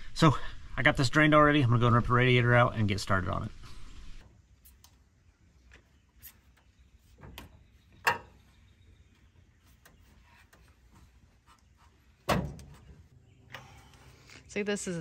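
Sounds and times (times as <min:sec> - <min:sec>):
tools clicking and knocking: 0:07.2 - 0:08.5.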